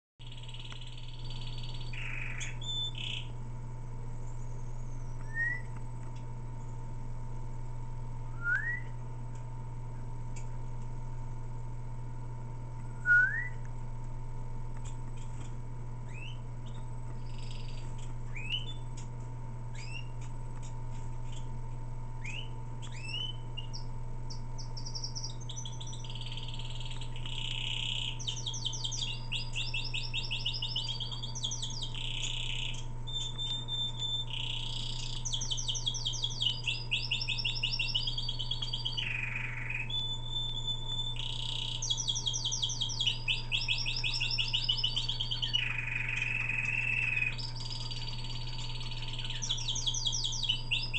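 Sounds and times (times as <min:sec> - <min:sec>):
canary chirping and singing: 0:00.2 - 0:03.4, 0:16.1 - 0:19.1, 0:19.8 - 0:20.2, 0:22.2 - 0:50.9.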